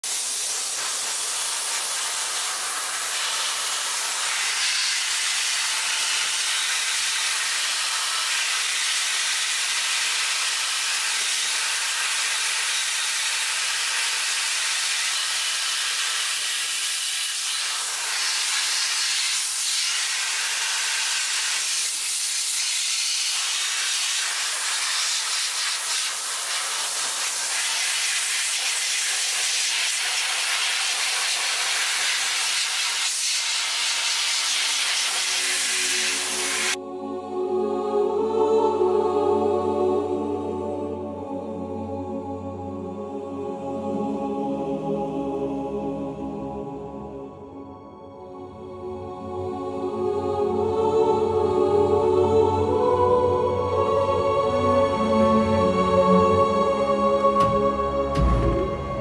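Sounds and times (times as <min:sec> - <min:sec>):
dry ice blasting hiss: 0:00.0 - 0:36.8.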